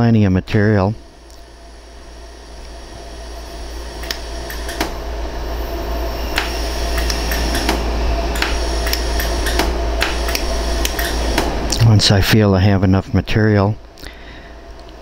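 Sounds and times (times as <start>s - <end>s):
steady hum: 0.0s - 15.0s
laser welder pulses snapping: 1.0s - 11.9s.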